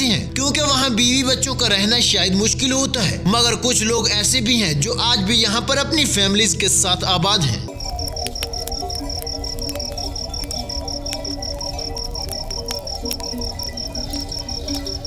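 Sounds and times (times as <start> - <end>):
campfire crackling: 6.0 - 15.0
cricket chirping: 7.7 - 15.0.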